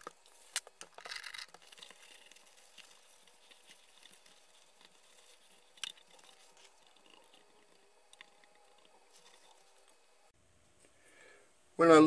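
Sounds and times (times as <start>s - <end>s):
scrubbing on metal faceplate: 0.0s - 10.3s
small ticks: 0.0s - 10.3s.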